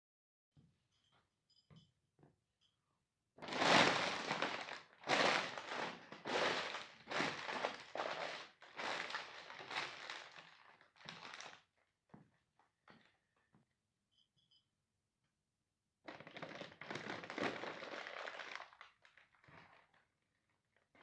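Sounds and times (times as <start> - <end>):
paper bag crumpling underfoot: 3.4 - 11.6, 16.1 - 20.0.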